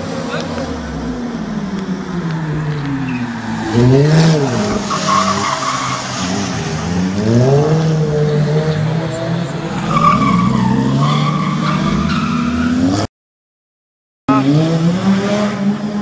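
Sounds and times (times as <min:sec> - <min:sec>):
tyres squealing and skidding: 0:00.1 - 0:07.2, 0:08.5 - 0:13.1.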